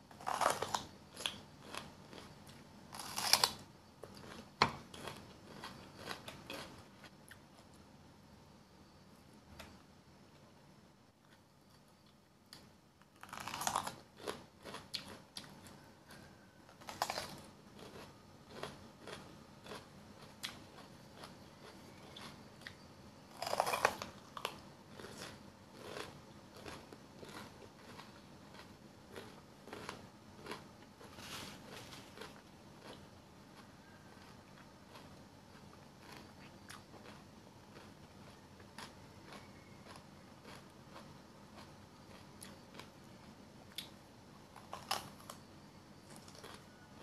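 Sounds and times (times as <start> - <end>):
crunchy bites into bell pepper: 0.1 - 6.7
chewing: 0.2 - 7.8, 13.3 - 43.1, 46.1 - 47.0.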